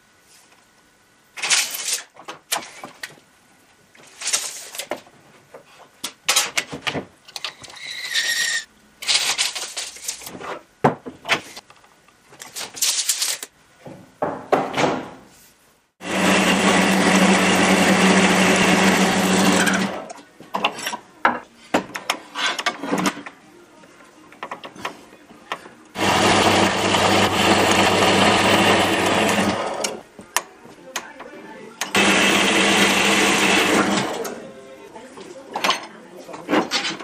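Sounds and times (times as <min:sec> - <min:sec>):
power tool running: 0:16.0 - 0:20.0, 0:26.0 - 0:30.0, 0:31.9 - 0:34.3.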